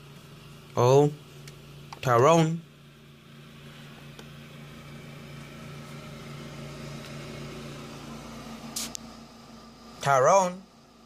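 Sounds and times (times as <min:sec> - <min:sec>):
steady low hum: 0:00.0 - 0:11.0
brief sharp hiss: 0:08.7 - 0:09.0
light hiss: 0:08.7 - 0:09.1.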